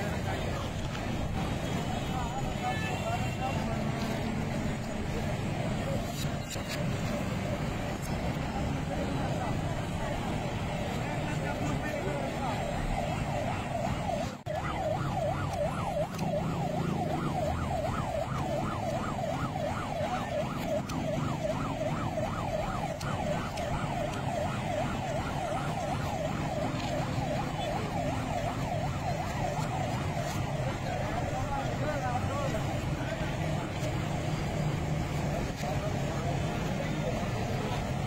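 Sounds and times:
low street noise: 0:00.0 - 0:38.0
electronic siren yelping: 0:09.3 - 0:37.1.

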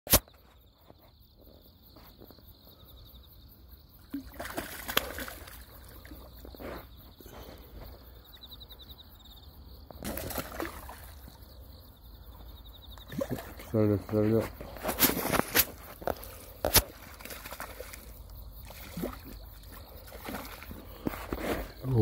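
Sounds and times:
sharp click: 0:00.1 - 0:00.3
water sloshing: 0:04.1 - 0:06.9, 0:10.0 - 0:11.4, 0:13.0 - 0:21.8.

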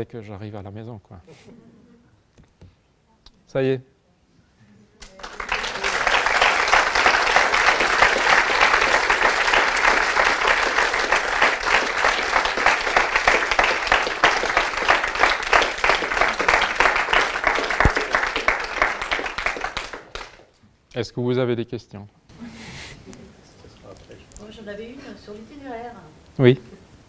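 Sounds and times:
audience applauding: 0:05.0 - 0:20.6.

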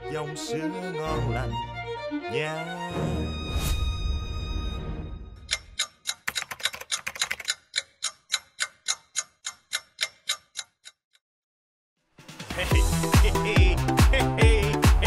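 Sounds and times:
clock ticking: 0:05.4 - 0:11.2.

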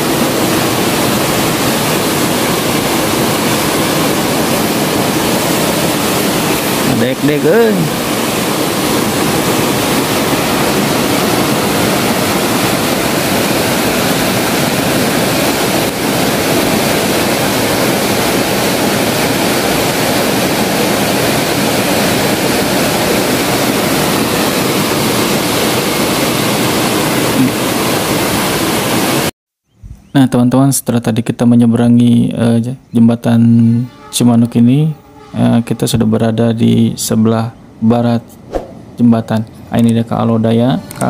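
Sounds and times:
river rushing over rocks: 0:00.0 - 0:29.3.

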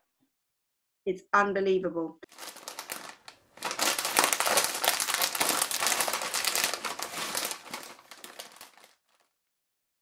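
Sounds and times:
crisp packet crumpling: 0:02.3 - 0:09.4.

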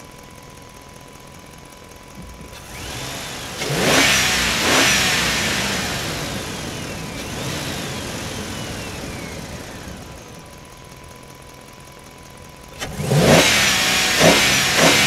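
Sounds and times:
small electric motor whining: 0:02.6 - 0:10.5.

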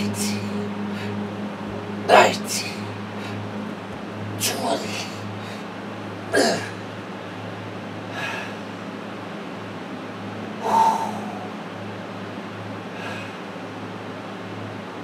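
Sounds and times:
low hum: 0:00.0 - 0:15.0
man exhaling heavily: 0:08.2 - 0:08.6, 0:10.6 - 0:11.5, 0:13.0 - 0:13.4.

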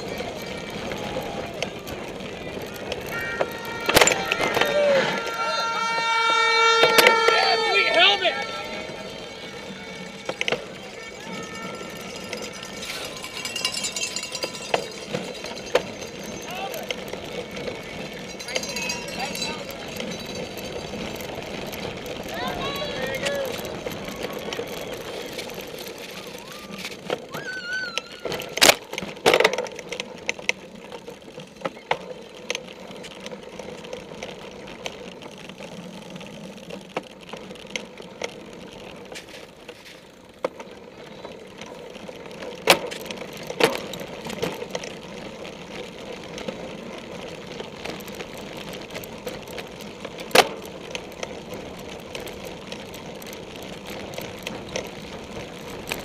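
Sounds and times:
bike tyres and drivetrain hum: 0:00.0 - 0:56.0
high squeal: 0:26.4 - 0:28.4.

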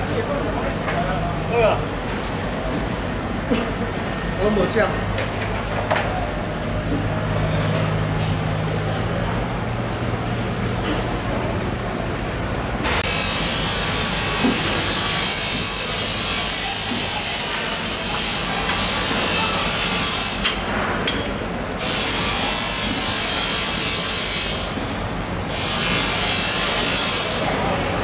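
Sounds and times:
saw rasping through fish: 0:13.1 - 0:20.4.

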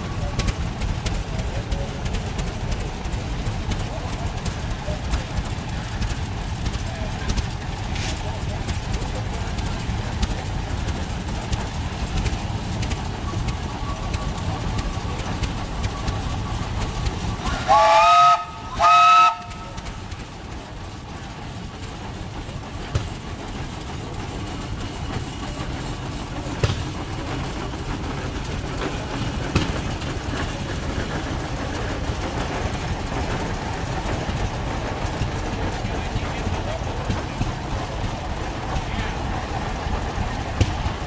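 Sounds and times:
steam engines running: 0:00.0 - 0:41.0
steam whistle blasts: 0:17.5 - 0:19.8.

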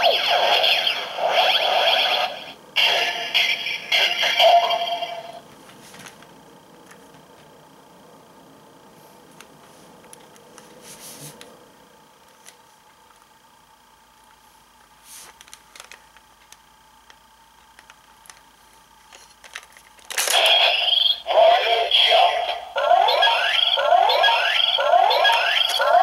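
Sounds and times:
electronic toy sound effects: 0:00.0 - 0:05.4, 0:20.2 - 0:26.0
synthetic voice-like call: 0:00.0 - 0:05.4, 0:20.3 - 0:26.0.

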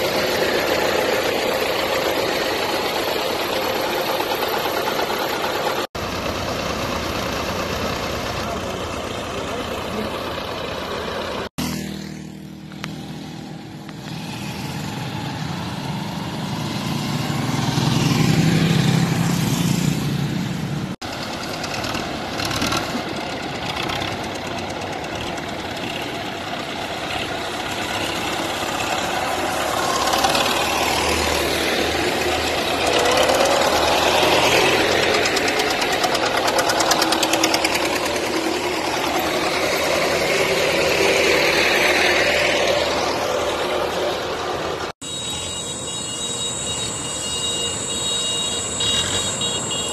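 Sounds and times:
tractors driving past: 0:00.0 - 0:49.9
motorcycles driving past: 0:11.4 - 0:45.0.

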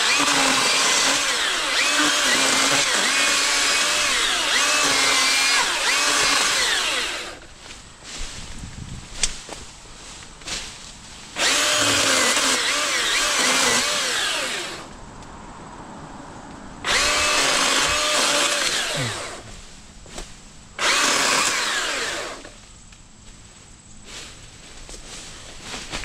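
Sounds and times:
chainsaw cutting branches: 0:00.0 - 0:08.5, 0:09.1 - 0:15.0, 0:16.8 - 0:22.6.

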